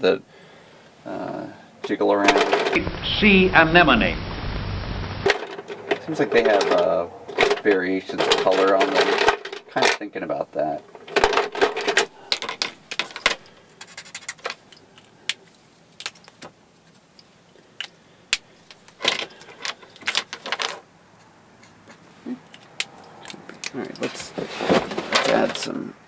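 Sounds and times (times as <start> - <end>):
markers clattering on table: 11.0 - 16.5, 17.8 - 20.8
marker caps clicking: 21.6 - 24.0.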